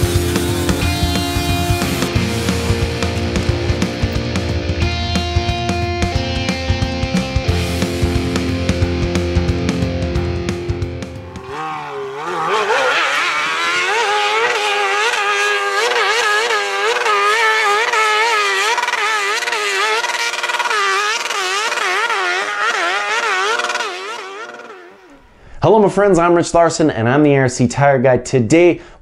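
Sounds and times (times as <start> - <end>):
rock music: 0.0 - 12.8
dirt bike engine at high revs: 0.0 - 25.4.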